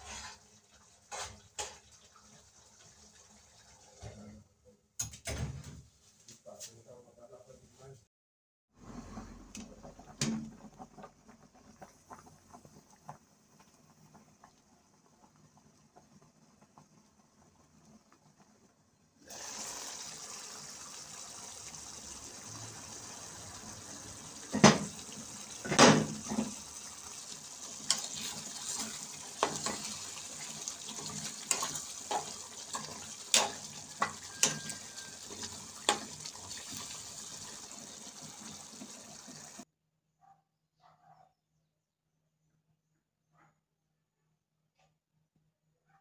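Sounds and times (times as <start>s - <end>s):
pot boiling with bubbling hiss: 8.8s - 39.7s.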